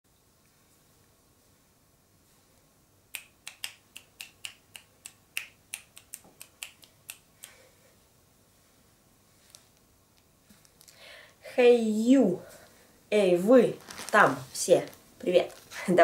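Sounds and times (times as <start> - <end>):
fingers snapping: 3.1 - 7.6.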